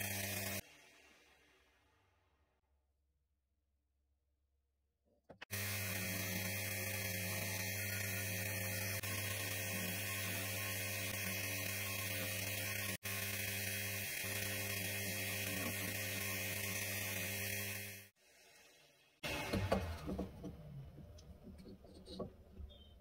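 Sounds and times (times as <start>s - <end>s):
drill press motor humming: 0.0s - 0.6s, 5.4s - 18.1s.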